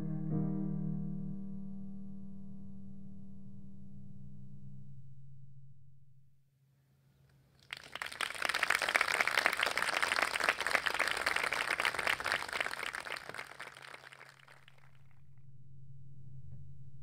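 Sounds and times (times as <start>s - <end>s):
audience clapping: 7.6s - 14.9s.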